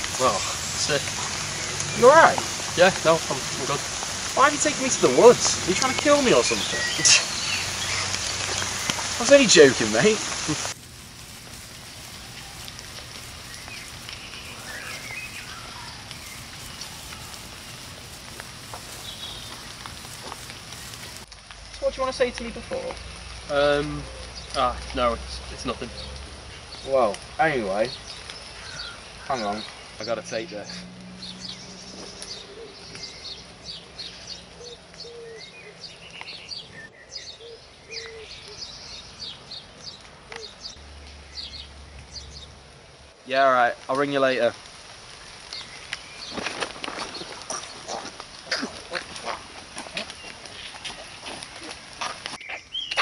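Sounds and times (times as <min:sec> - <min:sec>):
footsteps on path: 0:00.0 - 0:21.7, 0:31.4 - 0:36.8, 0:44.8 - 0:53.0
birds chirping: 0:00.0 - 0:42.7, 0:45.1 - 0:53.0
steady woodland hiss: 0:00.0 - 0:53.0
low bird cooing: 0:32.4 - 0:33.2, 0:34.6 - 0:35.8.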